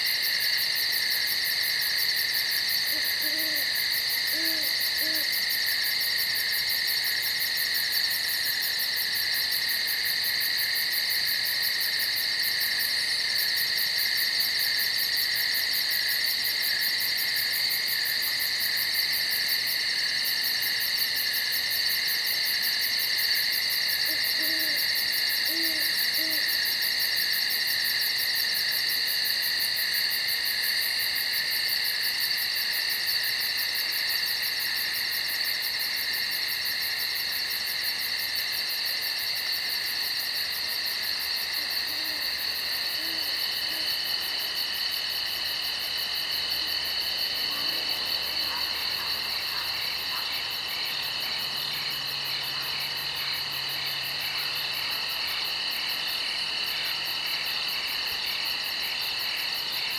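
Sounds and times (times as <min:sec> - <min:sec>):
insects trilling: 0:00.0 - 0:59.9
owl hooting: 0:02.9 - 0:05.4, 0:24.1 - 0:26.5, 0:43.0 - 0:43.9.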